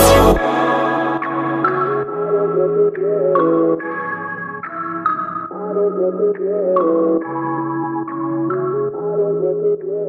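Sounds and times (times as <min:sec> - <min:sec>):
background music with sustained chords: 0:00.0 - 0:04.7.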